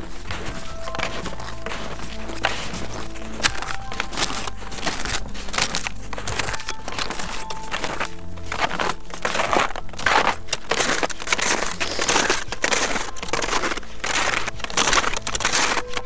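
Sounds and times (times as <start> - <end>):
footsteps crunching in snow: 0.0 - 16.0.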